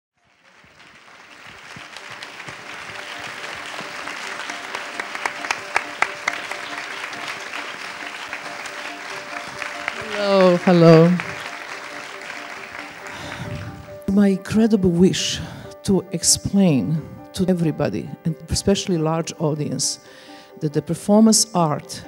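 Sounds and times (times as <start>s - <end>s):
audience applauding: 0.2s - 14.1s.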